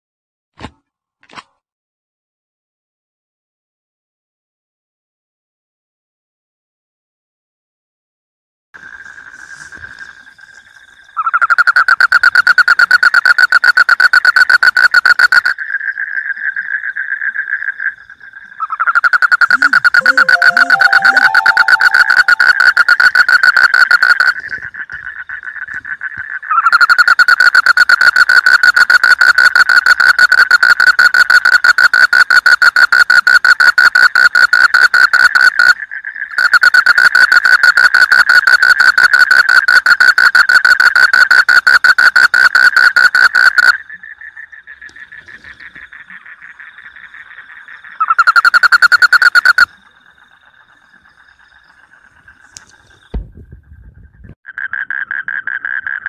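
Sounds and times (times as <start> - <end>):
frog calling in pulsed trills: 17.8 - 25.6, 26.5 - 53.1
softer frog trill: 18.7 - 24.5, 46.0 - 49.7.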